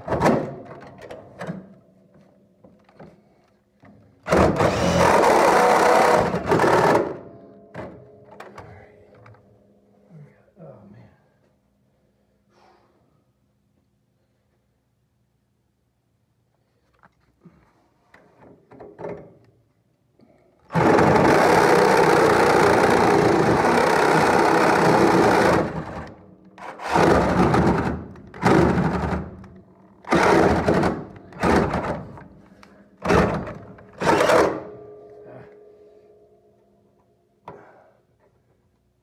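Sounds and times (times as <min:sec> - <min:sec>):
power tool cutting metal: 0:04.6 - 0:07.0, 0:20.7 - 0:26.0.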